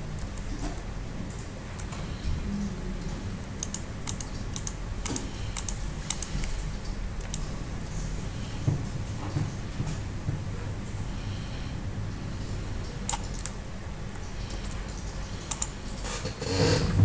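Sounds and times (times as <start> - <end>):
low room hum: 0.0 - 17.0
mouse and keyboard clicking: 3.6 - 6.5, 7.2 - 7.5, 13.0 - 13.6, 14.6 - 15.8.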